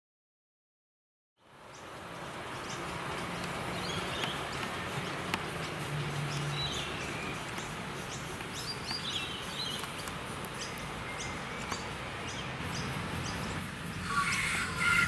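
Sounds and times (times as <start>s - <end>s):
birds chirping: 1.4s - 15.0s
outdoor noise: 1.4s - 15.0s
miniature steam train rolling past: 13.5s - 15.0s.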